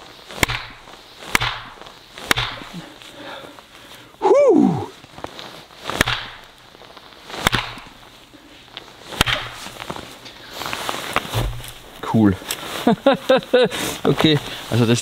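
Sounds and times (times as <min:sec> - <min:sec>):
axe striking wood: 0:00.4 - 0:02.8, 0:05.9 - 0:06.5, 0:07.4 - 0:08.0, 0:09.2 - 0:09.7.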